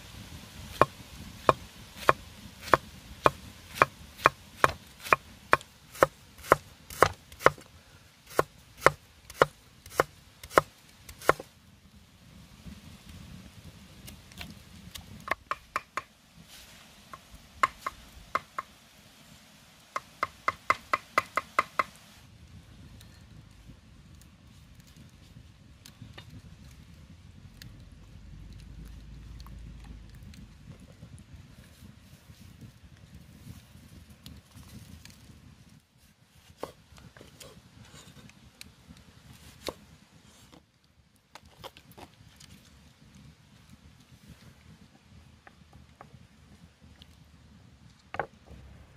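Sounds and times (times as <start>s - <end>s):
knife chopping on board: 0.8s - 7.6s, 8.3s - 11.4s.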